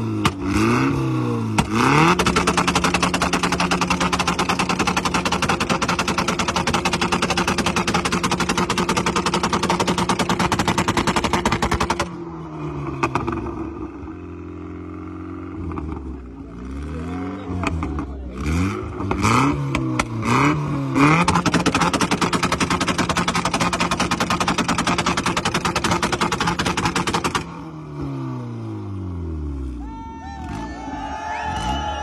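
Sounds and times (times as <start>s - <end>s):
engine stuttering on rev limiter: 0.0s - 12.2s, 15.5s - 27.6s
car engine revving: 0.0s - 29.8s.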